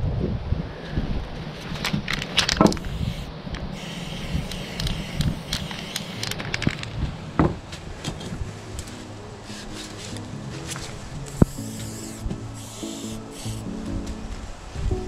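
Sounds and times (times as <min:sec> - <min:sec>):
spray paint cans clicking: 0:01.8 - 0:07.0, 0:11.4 - 0:13.7
paper rustling on wooden board: 0:08.1 - 0:11.0.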